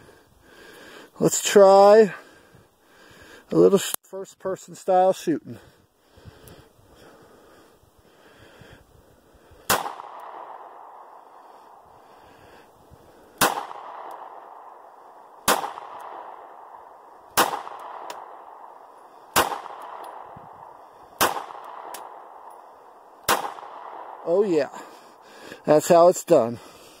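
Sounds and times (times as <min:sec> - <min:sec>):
pistol shots: 0:09.7 - 0:11.1, 0:13.4 - 0:18.7, 0:19.3 - 0:22.5, 0:23.2 - 0:24.2.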